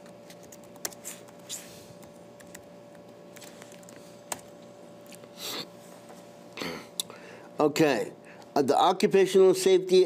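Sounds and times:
laptop keys clicking: 0.0s - 1.4s, 2.0s - 4.5s
faint hum: 0.0s - 10.0s.

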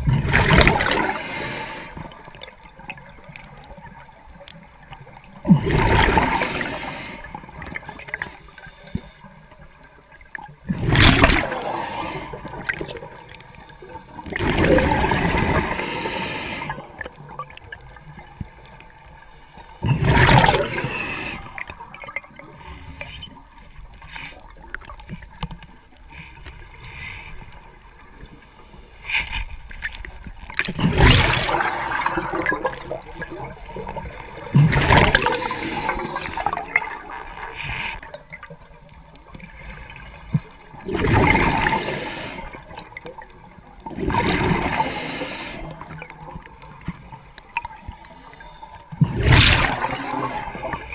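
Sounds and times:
underwater breath bubbles: 0.0s - 2.5s, 5.4s - 9.4s, 10.7s - 17.3s, 19.0s - 24.9s, 26.1s - 38.2s, 39.4s - 42.8s, 43.8s - 46.2s, 47.5s - 50.9s
water noise: 0.0s - 50.9s.

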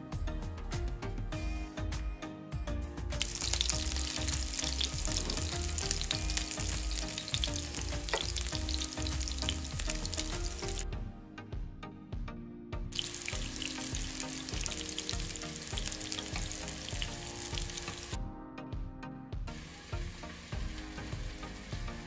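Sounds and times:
meatballs sizzling in oil: 3.2s - 10.8s, 13.0s - 18.2s, 19.5s - 22.0s.

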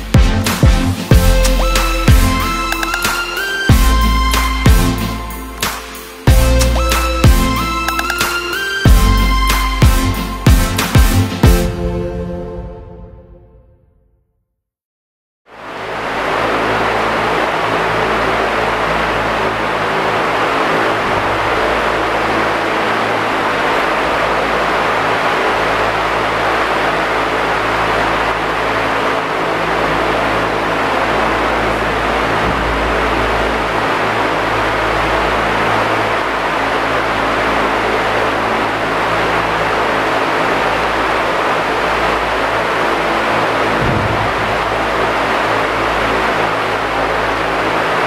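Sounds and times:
low hum: 15.6s - 48.0s
ventilation air rushing: 15.6s - 48.0s.

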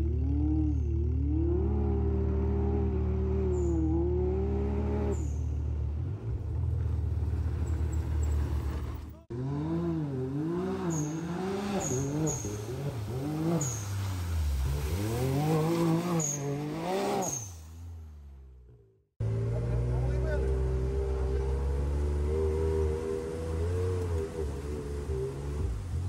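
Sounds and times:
engine revving up and down: 0.0s - 6.5s, 7.7s - 17.9s, 19.2s - 26.0s
buggy engine driving on gravel: 0.0s - 18.6s, 19.2s - 26.0s.

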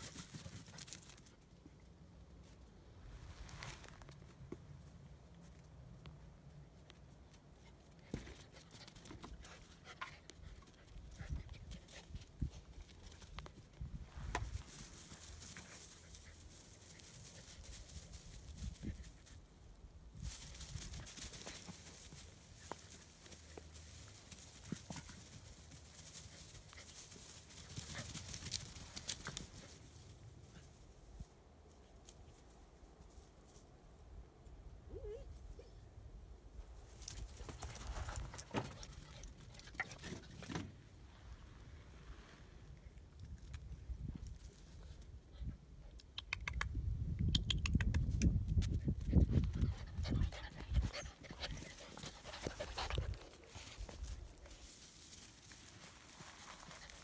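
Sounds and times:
puppies scuffling on grass: 2.4s - 5.7s, 10.5s - 33.8s, 36.7s - 43.1s, 48.6s - 57.0s
puppy panting and snuffling: 49.0s - 54.0s.

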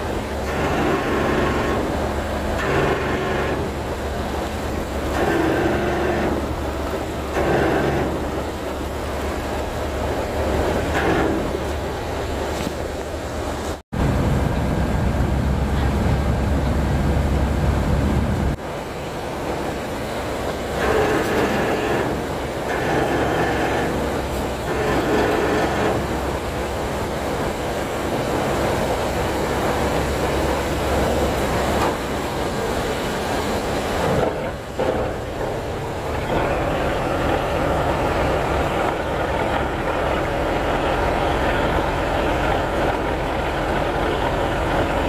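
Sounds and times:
ferry engine and machinery running: 0.0s - 45.0s
heavy low rumble: 13.2s - 18.6s, 34.2s - 45.0s.

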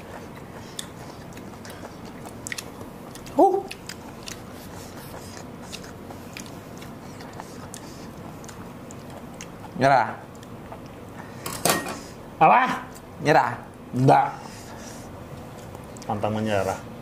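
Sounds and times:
chewing and crunching fruit: 0.0s - 11.3s, 15.3s - 16.2s.

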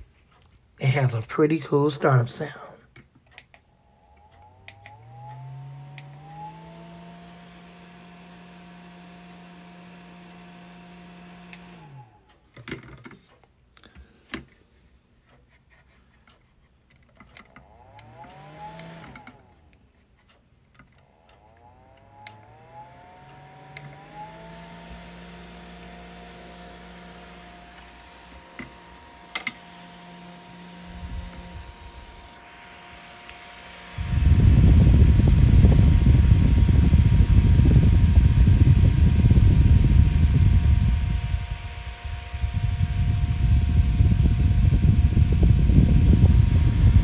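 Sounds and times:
desk fan motor whining: 0.0s - 47.0s
switch clicks: 2.9s - 6.5s.

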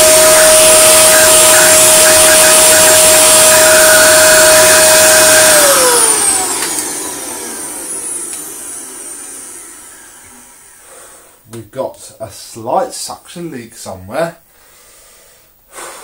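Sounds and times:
vacuum cleaner motor whine: 0.0s - 11.3s.

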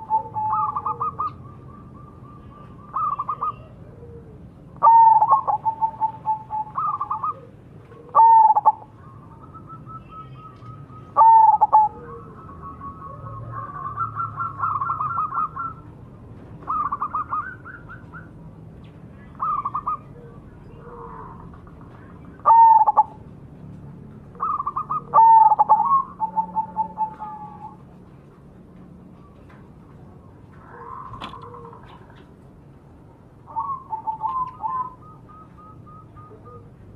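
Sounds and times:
dove cooing: 0.0s - 15.9s, 16.6s - 18.4s, 19.4s - 23.2s, 24.3s - 28.0s, 30.6s - 32.4s, 33.4s - 36.9s.

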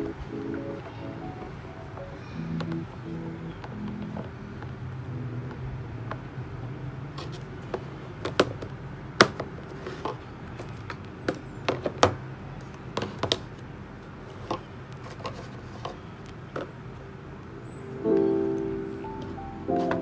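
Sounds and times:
faint low hum: 0.0s - 6.7s.

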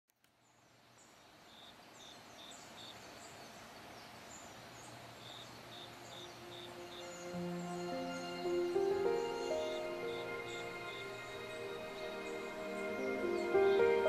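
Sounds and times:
steady hiss: 0.2s - 14.0s
birds calling: 0.5s - 14.0s
soft music: 5.6s - 14.0s.

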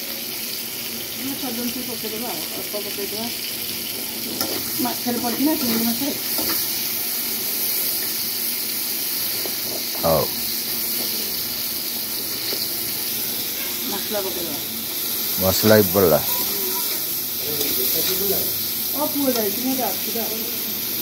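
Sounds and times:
food sizzling in hot oil: 0.0s - 21.0s.

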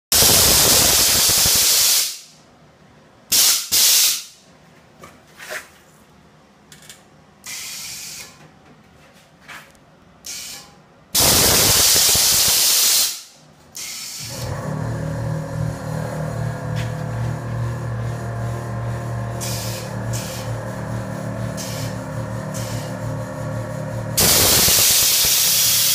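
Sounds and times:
compressed air hissing: 0.2s - 2.3s, 3.3s - 4.4s, 7.4s - 8.3s, 10.2s - 14.4s, 19.4s - 20.6s, 21.5s - 23.0s, 24.2s - 25.9s.

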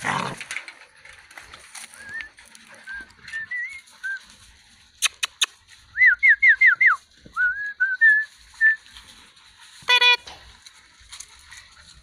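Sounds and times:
whistled notes: 1.9s - 4.3s, 5.9s - 8.9s.

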